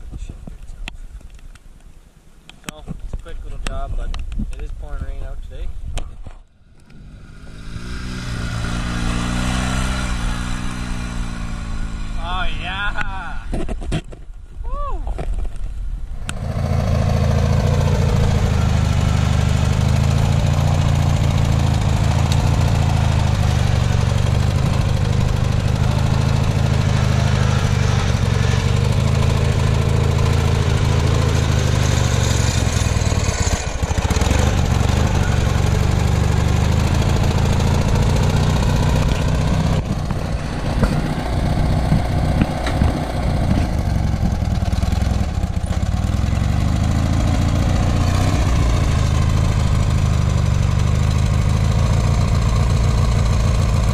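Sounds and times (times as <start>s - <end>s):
lawn tractor engine under load: 16.3s - 53.9s.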